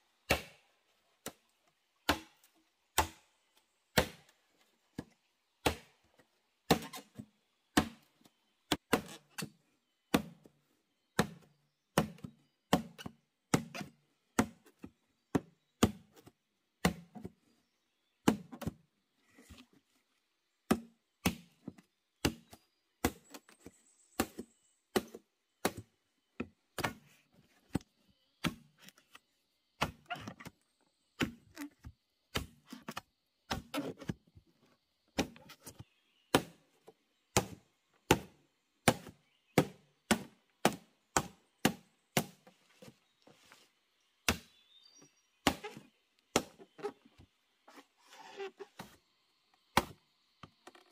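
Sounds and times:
machete chopping bamboo: 0.2 - 1.4, 2.0 - 3.3, 3.9 - 4.4, 5.0 - 6.0, 6.7 - 8.1, 8.7 - 10.6, 11.2 - 16.2, 16.8 - 17.4, 18.2 - 18.8, 20.7 - 23.4, 24.1 - 25.9, 26.7 - 27.1, 28.4 - 28.8, 29.8 - 30.4, 31.2 - 31.7, 32.3 - 33.9, 35.2 - 35.4, 36.3 - 36.6, 37.3 - 42.5, 44.2 - 44.6, 45.4 - 46.8, 49.7 - 50.0.

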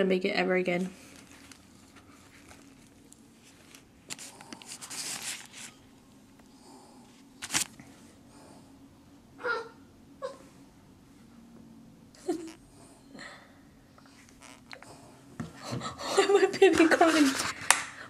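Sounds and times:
paper wrapper crinkling: 1.0 - 5.8, 7.4 - 7.8
dog whimpering: 9.4 - 10.5.

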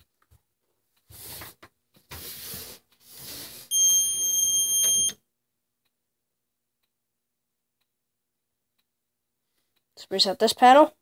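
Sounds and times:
high-pitched alarm buzzer beep: 3.7 - 5.2.

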